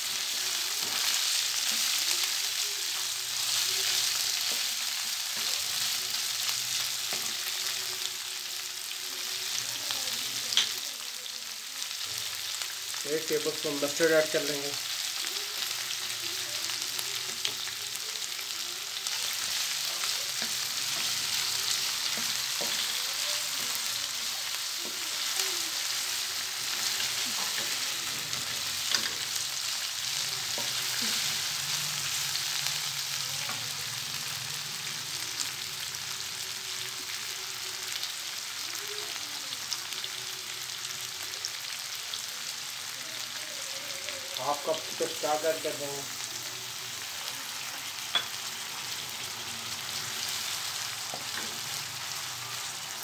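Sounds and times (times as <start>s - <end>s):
food sizzling in a wok: 0.0s - 53.0s.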